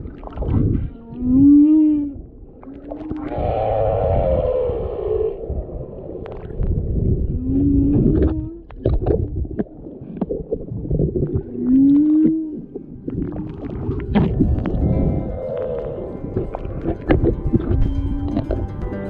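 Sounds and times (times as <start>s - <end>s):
whale song underwater: 0.0s - 19.0s
clicks and crackles: 8.0s - 14.9s.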